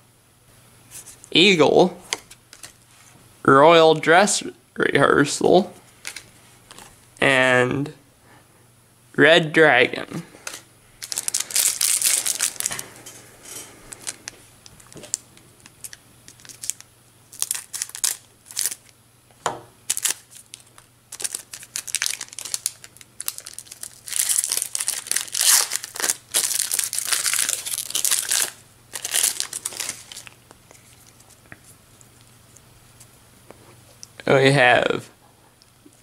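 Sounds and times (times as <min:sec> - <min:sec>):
foil wrapper crinkling and tearing: 0:10.4 - 0:12.9, 0:13.9 - 0:18.9, 0:19.9 - 0:31.4.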